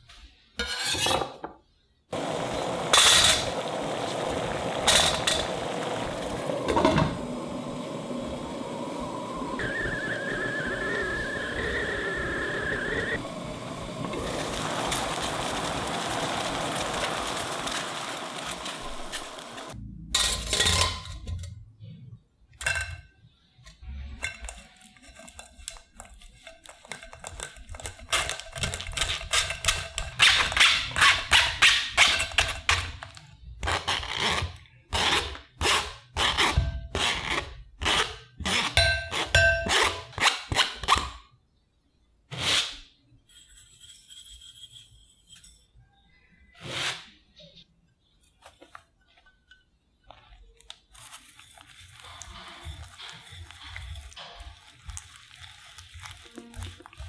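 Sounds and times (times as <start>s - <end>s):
pouring into bowl: 14.0s - 19.8s
spoon scraping wire-mesh sieve: 24.2s - 30.1s, 42.3s - 45.7s, 50.9s - 57.0s.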